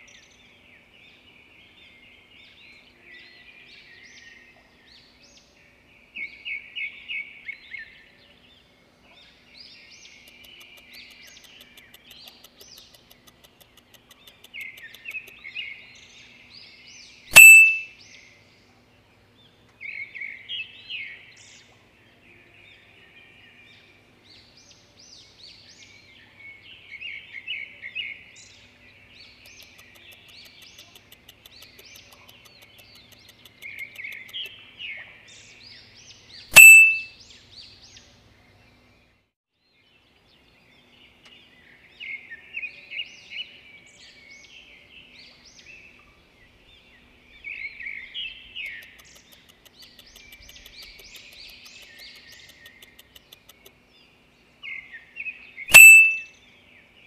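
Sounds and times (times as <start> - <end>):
songbirds chirping and trilling: 0.0 - 57.0
loud ding: 17.3 - 17.8, 36.6 - 37.0, 55.7 - 56.2.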